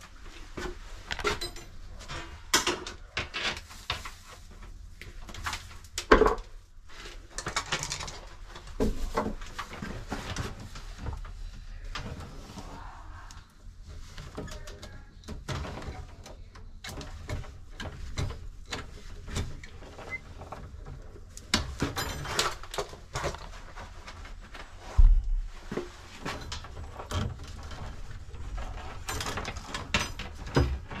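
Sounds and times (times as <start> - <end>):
wires and pliers clicking and scraping: 0.2 - 11.3, 14.1 - 24.7, 25.6 - 31.0.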